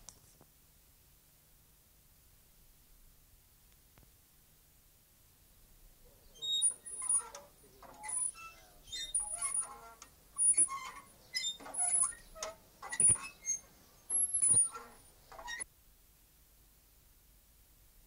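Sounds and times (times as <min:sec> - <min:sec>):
playground swing squeaking: 0:06.3 - 0:15.7.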